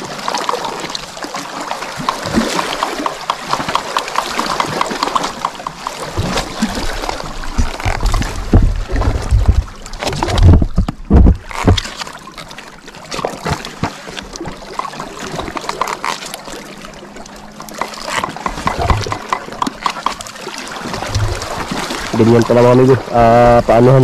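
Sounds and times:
water splashing against boat: 0.0 - 24.0
heavy thumps: 18.2 - 20.2.

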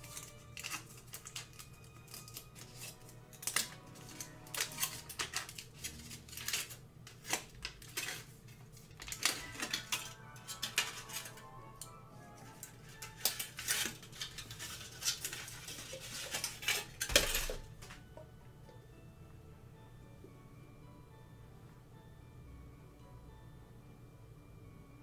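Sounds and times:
foil wrapper crinkling: 0.0 - 18.0
light background music: 0.0 - 25.0.

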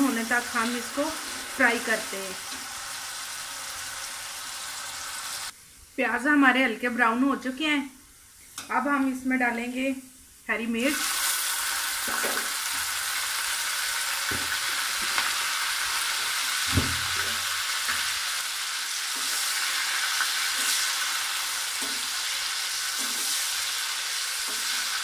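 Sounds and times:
onions sizzling in oil: 0.0 - 5.6, 10.7 - 25.0.

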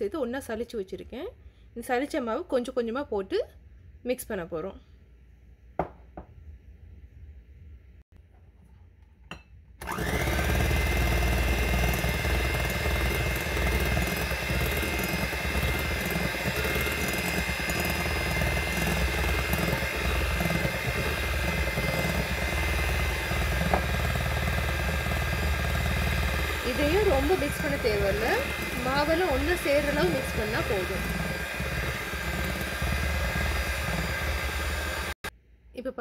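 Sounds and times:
electric hand mixer whirring: 9.8 - 35.3.

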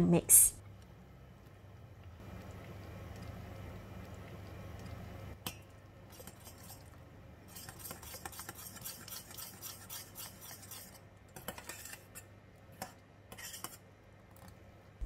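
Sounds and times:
spoon scraping saucepan: 7.5 - 13.8.

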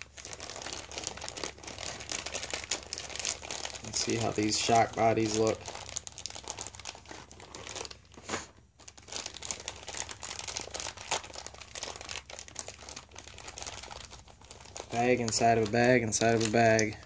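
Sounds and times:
plastic bags crinkling: 0.0 - 17.0.

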